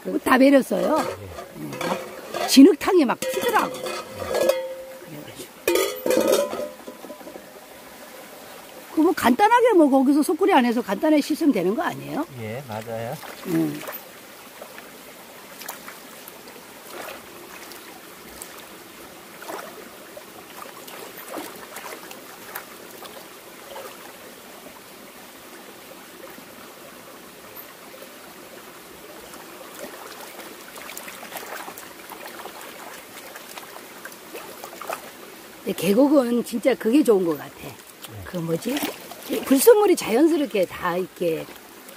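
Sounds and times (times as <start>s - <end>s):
stream running over rocks: 0.0s - 41.9s
splashes of rinsing in water: 0.4s - 5.0s, 12.6s - 14.9s, 15.5s - 18.7s, 19.3s - 24.2s, 29.3s - 35.2s, 35.8s - 41.9s.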